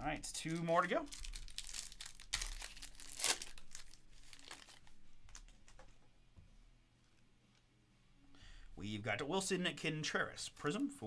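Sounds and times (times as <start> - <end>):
plastic wrapper tearing and crinkling: 0.4 - 5.5.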